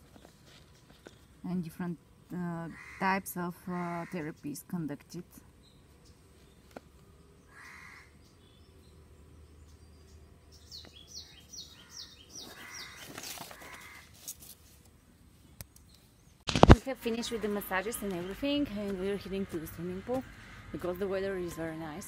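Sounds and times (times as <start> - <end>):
crows cawing: 2.7 - 3.1, 7.5 - 8.2, 11.7 - 14.1, 20.0 - 20.9
small bird chirping: 7.4 - 13.9.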